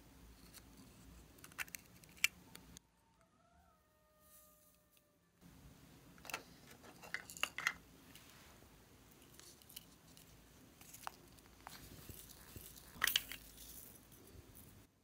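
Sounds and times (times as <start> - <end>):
faint steady hiss: 4.2 - 15.0.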